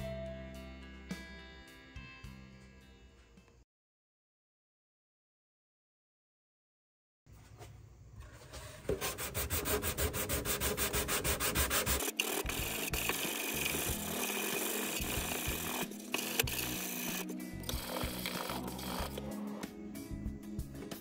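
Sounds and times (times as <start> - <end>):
sanding block rubbing on wood: 8.9 - 15.8.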